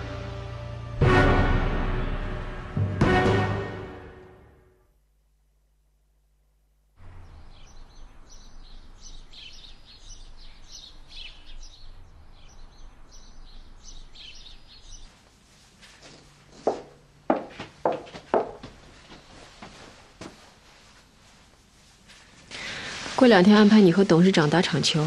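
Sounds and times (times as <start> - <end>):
birds chirping: 7.0 - 15.1
faint steady hiss: 18.6 - 25.0.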